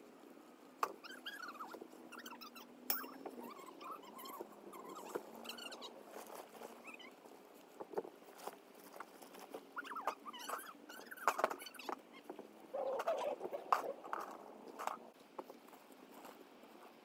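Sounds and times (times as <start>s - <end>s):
high chirpy squeaks: 0.8s - 6.0s, 6.6s - 7.2s, 9.8s - 14.4s.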